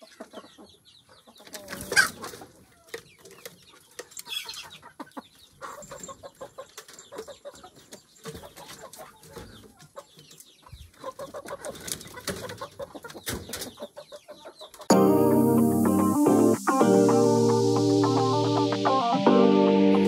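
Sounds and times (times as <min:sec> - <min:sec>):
chickens clucking: 0:00.0 - 0:15.0.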